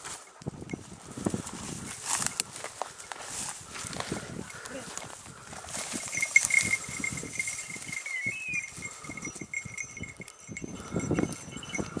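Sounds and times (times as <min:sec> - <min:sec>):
footsteps: 0:00.0 - 0:08.1
rustling brush: 0:00.0 - 0:10.0
dog collar bell ringing: 0:04.4 - 0:04.9, 0:05.9 - 0:12.0.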